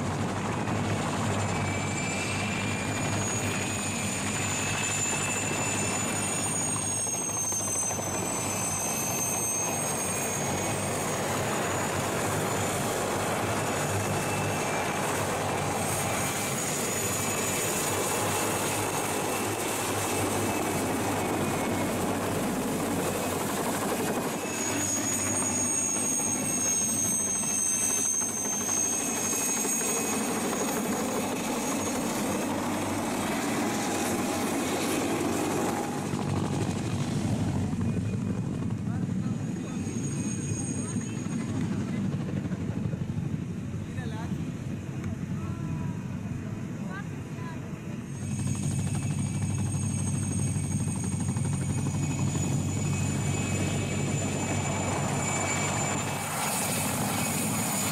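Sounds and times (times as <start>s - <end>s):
helicopter rotor noise: 0.0s - 57.9s
turbine engine whine: 0.0s - 57.9s.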